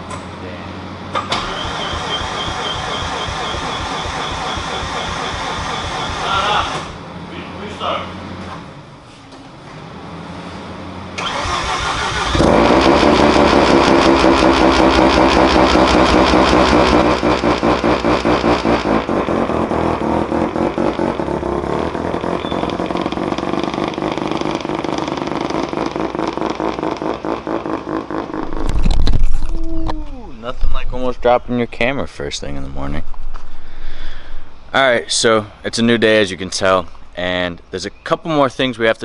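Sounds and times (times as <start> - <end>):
car engine cranking and idling: 0.0 - 37.5
car pulling away: 0.8 - 7.3, 8.1 - 29.8.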